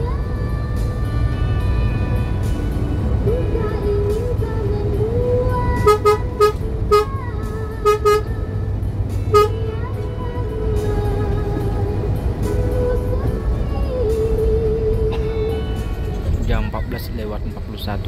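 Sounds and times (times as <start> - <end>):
background music: 0.0 - 18.0
engine and road rumble: 0.0 - 18.0
vehicle horn short toots: 5.8 - 7.2, 7.8 - 8.3, 9.3 - 9.7.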